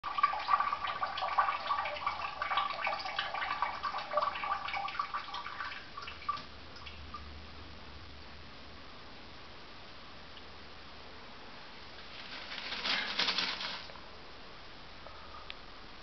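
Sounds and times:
cat urine trickling into toilet: 0:00.0 - 0:07.4, 0:11.8 - 0:14.0.

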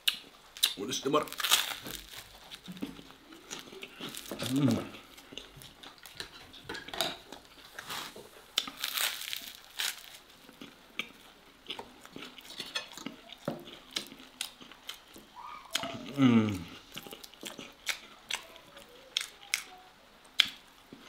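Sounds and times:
bread roll tearing and chewing: 0:00.0 - 0:06.3, 0:07.5 - 0:15.2.

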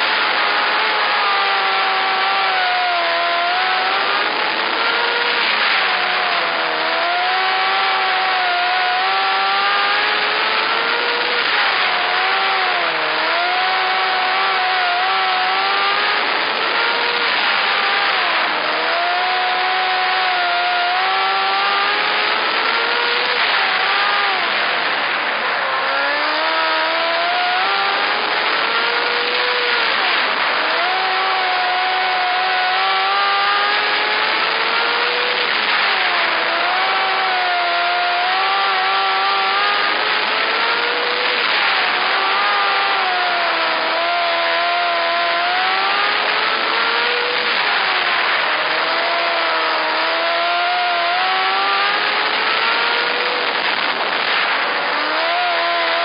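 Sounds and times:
race car engine revving: 0:00.0 - 0:56.0.

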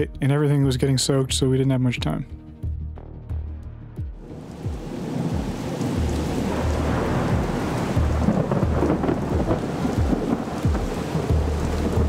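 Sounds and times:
heavy rain: 0:04.2 - 0:12.0
rolling thunder: 0:04.2 - 0:12.0.

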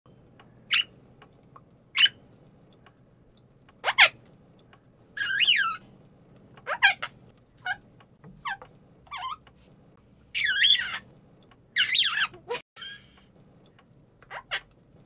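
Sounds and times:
parakeet squeaky calls: 0:00.7 - 0:00.9, 0:02.0 - 0:02.2, 0:03.8 - 0:04.2, 0:05.2 - 0:05.8, 0:06.6 - 0:07.8, 0:08.4 - 0:09.4, 0:10.4 - 0:11.0, 0:11.8 - 0:12.6, 0:14.3 - 0:14.7.

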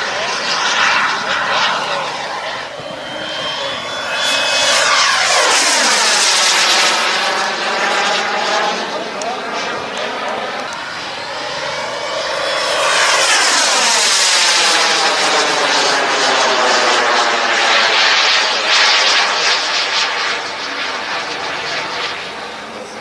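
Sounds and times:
model jet turbine whine: 0:00.0 - 0:23.0.

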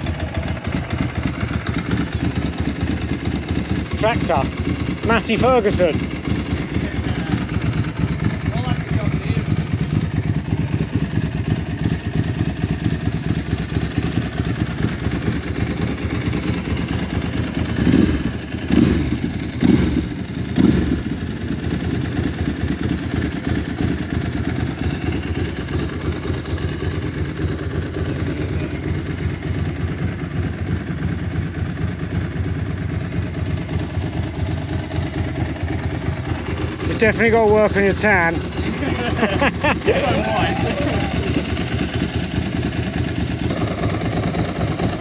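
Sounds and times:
motorcycle engine idling: 0:00.0 - 0:45.0.

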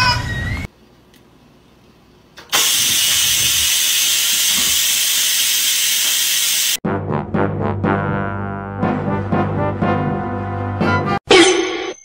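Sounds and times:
rice cooker steam hiss: 0:02.5 - 0:06.8
brass music: 0:06.8 - 0:11.2.

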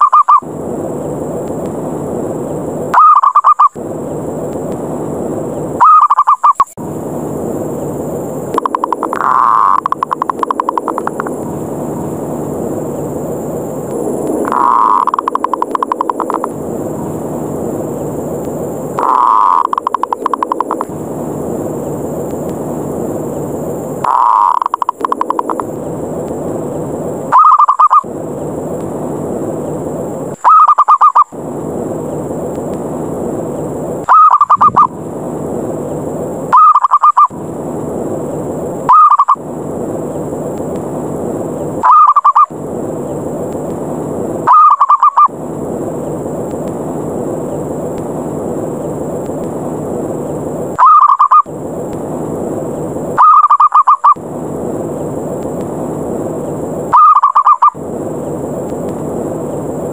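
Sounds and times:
background hiss: 0:00.0 - 0:59.9
dove staccato coos: 0:14.4 - 0:16.5, 0:19.0 - 0:20.9, 0:24.0 - 0:25.6, 0:44.5 - 0:45.3, 0:50.8 - 0:51.4, 0:53.2 - 0:54.2, 0:56.9 - 0:57.8.

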